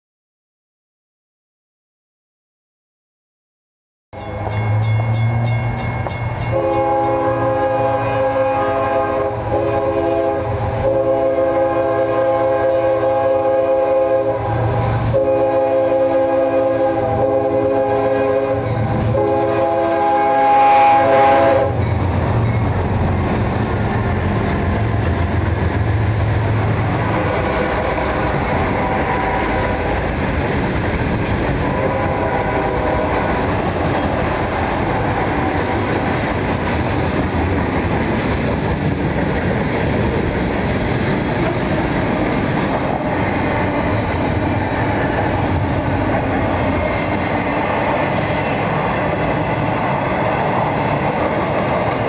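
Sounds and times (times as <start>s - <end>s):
train wheels clattering on rails: 4.2s - 7.2s, 21.8s - 31.7s, 33.1s - 52.0s
diesel locomotive engine hum: 4.2s - 52.0s.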